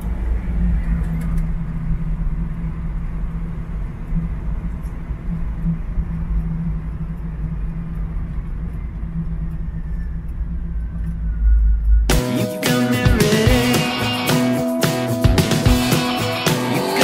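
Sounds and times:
rock music with guitar: 12.1 - 17.0.

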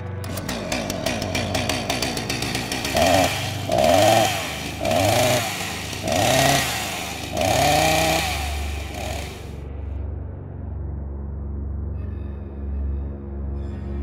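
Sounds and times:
chainsaw revving: 0.2 - 9.5.

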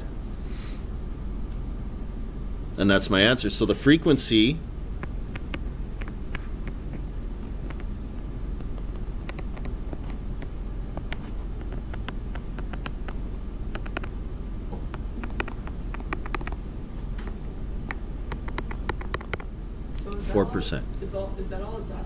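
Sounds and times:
steady low hum: 0.0 - 22.0
stylus tapping on tablet screen: 5.0 - 8.0, 8.6 - 14.2, 14.8 - 16.6, 17.2 - 19.5.

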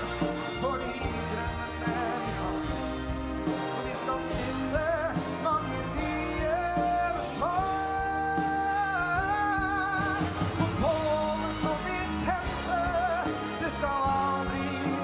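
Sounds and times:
big band playing: 0.0 - 15.0
man singing: 0.0 - 15.0.

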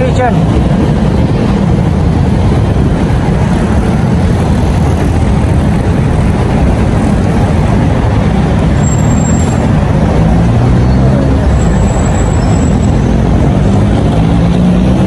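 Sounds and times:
city street traffic rumble: 0.0 - 15.0.

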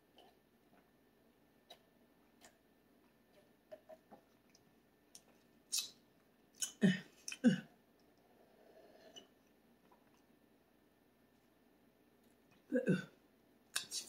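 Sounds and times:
mouth clicks: 5.1 - 6.0, 6.6 - 7.5, 13.7 - 14.0
voiced throat sounds: 12.7 - 13.1.

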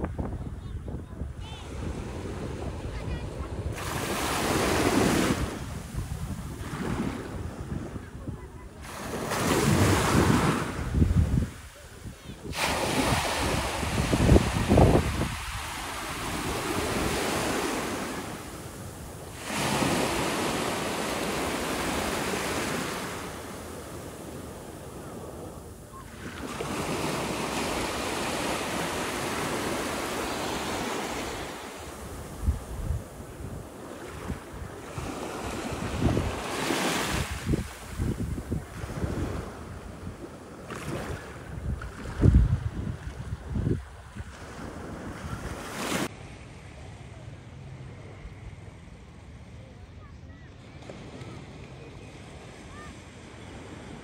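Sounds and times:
wind buffeting microphone: 0.0 - 17.9, 31.2 - 45.7
small waves washing ashore: 1.2 - 49.7.

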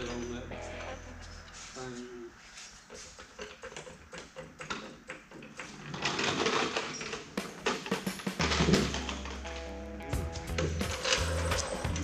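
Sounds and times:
wooden dolly rolling on concrete: 2.6 - 12.0
floor jack metal clicks and clanks: 3.1 - 9.7.

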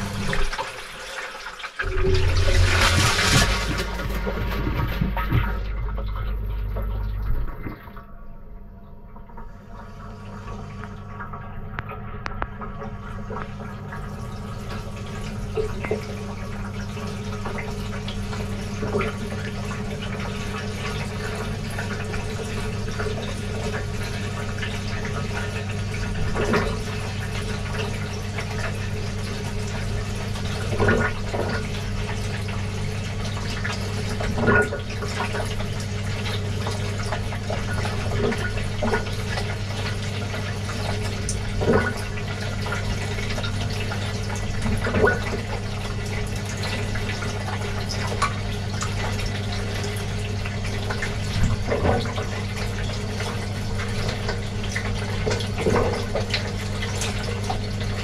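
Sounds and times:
wet laundry splashing: 0.0 - 8.0, 24.2 - 58.0
washing machine hum: 0.0 - 58.0
water sloshing in washing machine: 0.0 - 58.0.

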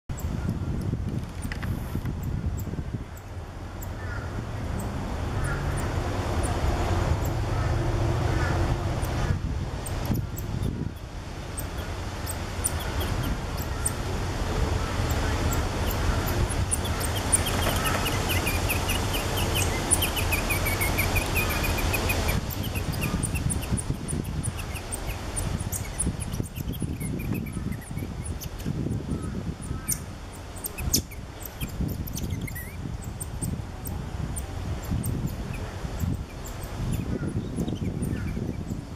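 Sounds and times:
wind on microphone: 0.1 - 38.9
twittering calls: 7.2 - 38.9
high-pitched bird chirps: 15.1 - 28.6, 29.2 - 33.6.

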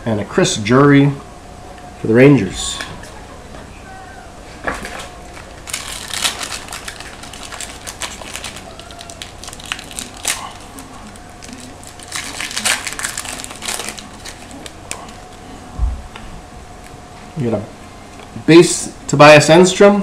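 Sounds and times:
foil wrapper crinkling and tearing: 4.7 - 15.3.

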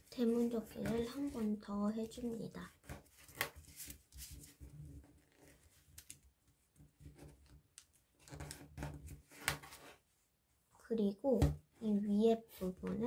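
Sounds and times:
paper rustling and crinkling: 2.8 - 6.2.

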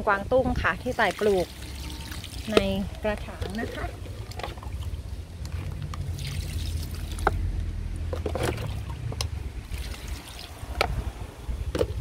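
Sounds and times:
low steady rumble: 0.0 - 12.0
liquid trickling onto leaves: 5.8 - 7.3, 9.7 - 10.7.

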